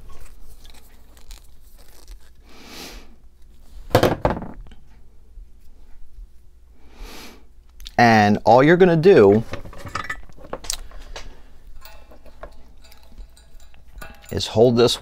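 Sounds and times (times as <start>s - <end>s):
wire rustling in hands: 0.0s - 3.9s, 9.1s - 15.0s.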